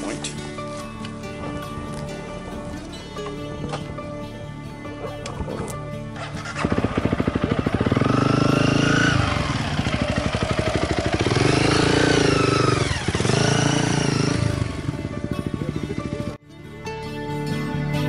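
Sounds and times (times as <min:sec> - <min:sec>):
motorcycle engine revving: 0:05.6 - 0:16.4.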